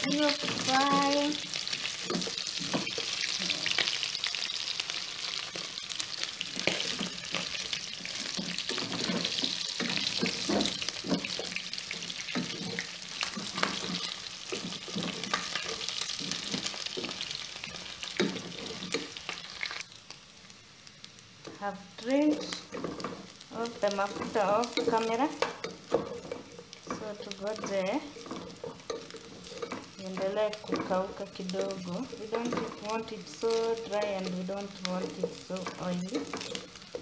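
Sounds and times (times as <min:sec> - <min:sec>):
meat sizzling in a pot: 0:00.0 - 0:37.0
wooden spoon scraping a pot: 0:06.4 - 0:19.3, 0:22.4 - 0:37.0.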